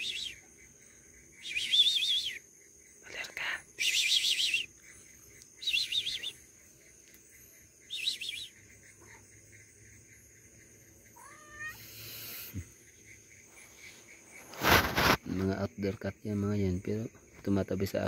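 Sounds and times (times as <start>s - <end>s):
high warbling chirps: 3.4s - 6.5s, 7.4s - 9.2s
cat meowing: 11.2s - 11.9s.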